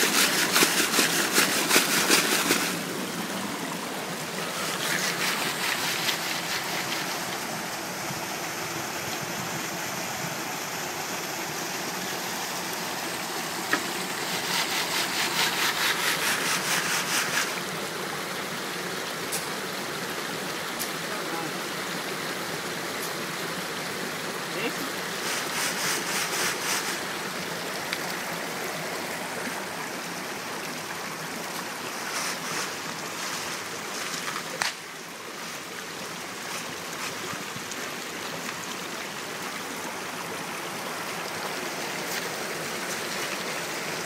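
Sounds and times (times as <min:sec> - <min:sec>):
sieve of wet gravel shaking: 0:00.0 - 0:03.2, 0:04.4 - 0:07.4, 0:14.2 - 0:17.6, 0:25.2 - 0:27.1, 0:31.9 - 0:34.6
creek water over rocks: 0:00.0 - 0:44.0.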